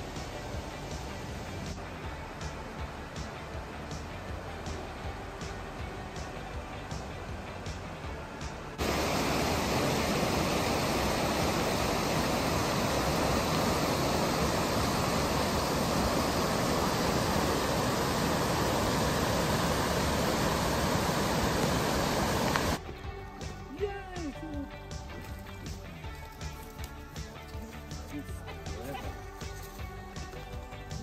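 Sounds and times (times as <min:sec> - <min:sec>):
river water rushing over rocks: 0:00.0 - 0:22.8.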